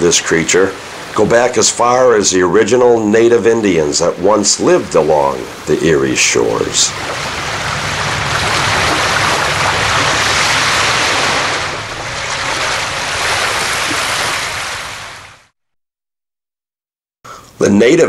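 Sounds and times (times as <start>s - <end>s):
waves washing in: 0.3s - 2.3s, 3.3s - 15.5s.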